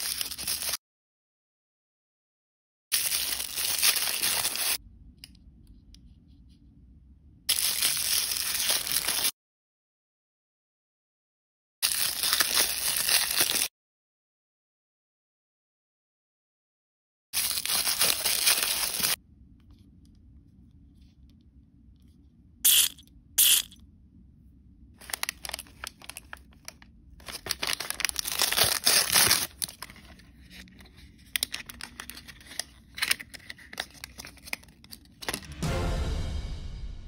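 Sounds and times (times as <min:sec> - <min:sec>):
packaging crinkling: 0:03.0 - 0:04.8, 0:17.4 - 0:19.2, 0:25.0 - 0:35.4
packaging ripping: 0:03.0 - 0:04.8, 0:11.8 - 0:13.7, 0:17.4 - 0:19.2, 0:25.0 - 0:35.4
plastic packaging crackling: 0:17.4 - 0:19.2, 0:25.0 - 0:35.4.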